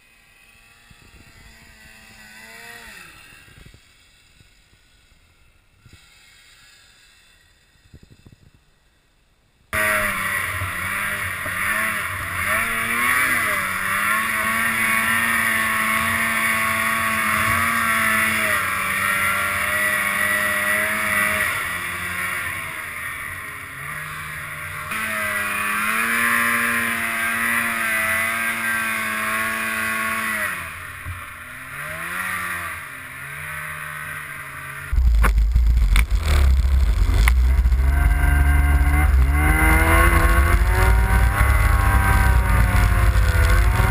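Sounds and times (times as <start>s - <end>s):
snowmobile engine revving: 0.0s - 4.2s, 9.8s - 43.9s
track hissing through snow: 0.0s - 8.4s.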